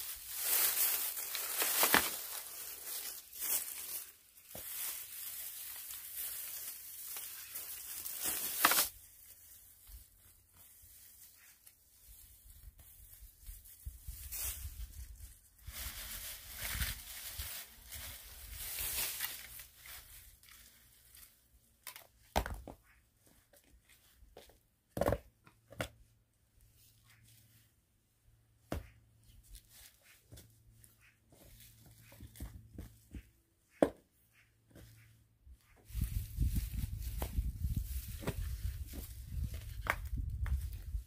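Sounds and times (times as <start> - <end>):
dry grass being pulled and torn: 0.0 - 22.0, 35.7 - 41.0.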